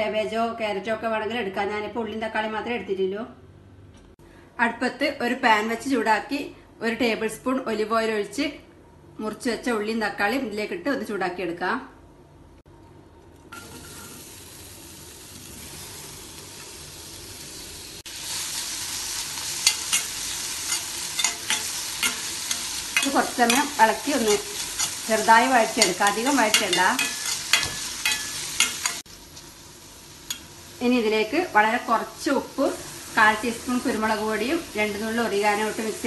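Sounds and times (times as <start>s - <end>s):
vegetables sizzling in oil: 13.5s - 36.0s.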